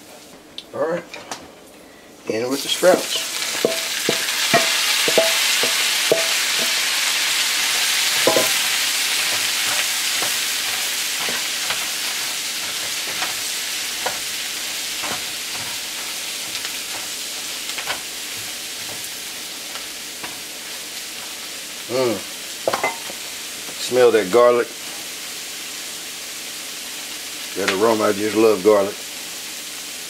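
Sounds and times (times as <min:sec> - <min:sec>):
vegetables sizzling in grease: 0:02.3 - 0:30.0
spatula knocking and scraping pan: 0:02.9 - 0:19.2, 0:22.7 - 0:23.2.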